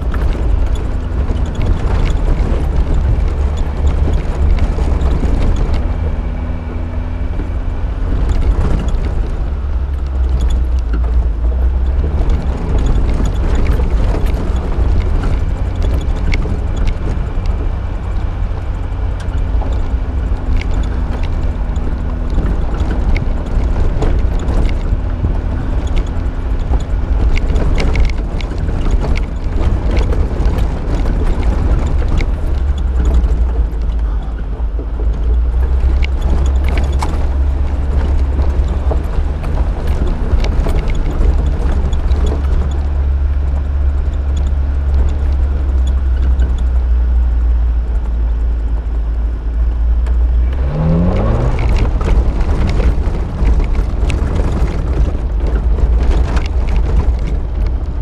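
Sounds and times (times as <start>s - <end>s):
car engine rumbling: 0.0s - 58.0s
vehicle knocks and rattles: 0.0s - 58.0s.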